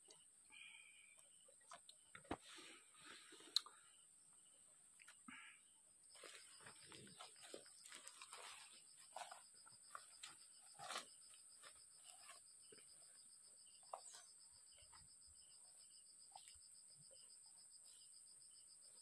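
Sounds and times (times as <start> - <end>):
insects chirping: 0.0 - 19.0
footsteps through grass: 6.2 - 12.4.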